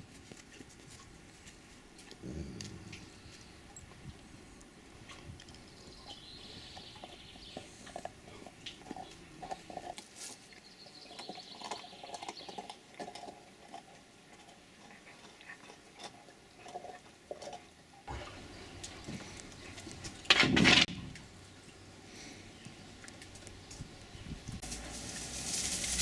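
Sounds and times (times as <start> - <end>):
puppy chewing and gnawing: 0.0 - 20.3.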